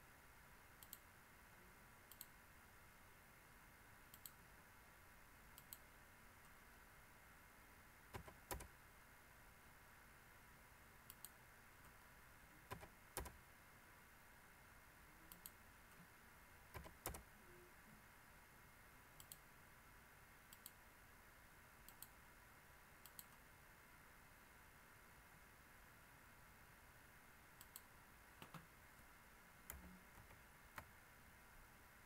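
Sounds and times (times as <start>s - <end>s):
faint steady background noise: 0.0s - 32.0s
faint computer mouse clicks: 0.8s - 1.1s, 2.1s - 2.3s, 4.1s - 4.4s, 5.6s - 6.6s, 11.1s - 12.0s, 15.3s - 16.0s, 19.2s - 19.5s, 20.5s - 20.8s, 21.8s - 22.2s, 23.0s - 23.4s, 27.6s - 28.7s.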